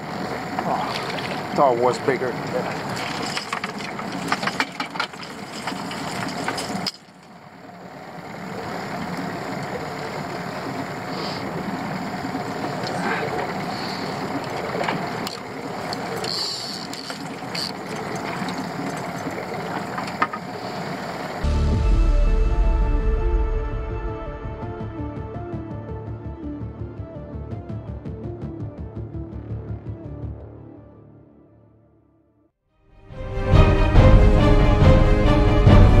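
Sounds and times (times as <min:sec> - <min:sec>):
water noise: 0:00.0 - 0:21.5
wind: 0:00.0 - 0:21.5
outboard motor running: 0:00.0 - 0:21.6.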